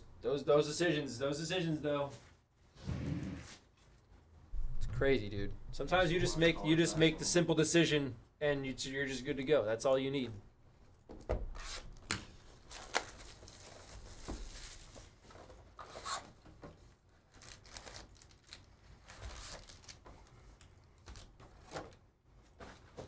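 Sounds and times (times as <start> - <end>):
foil packs rustling and crinkling: 12.4 - 15.6, 17.1 - 23.0.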